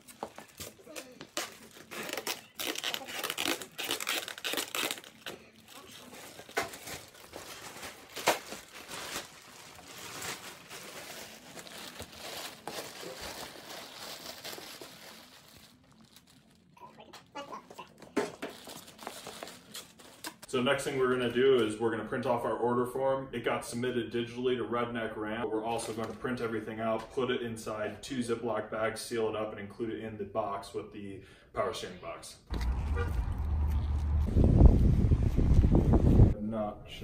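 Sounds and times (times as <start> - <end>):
plastic bag crinkling: 0.0 - 20.5.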